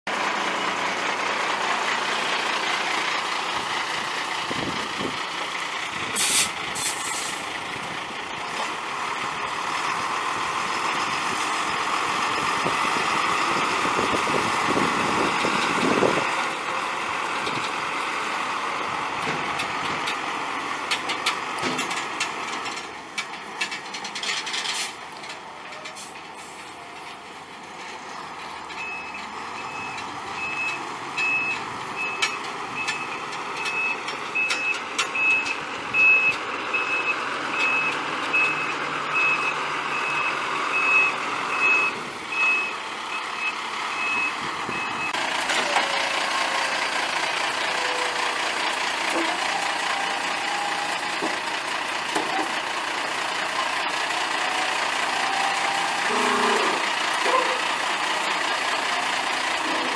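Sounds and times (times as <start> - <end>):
diesel truck engine running: 0.1 - 59.9
air hiss: 6.2 - 7.4.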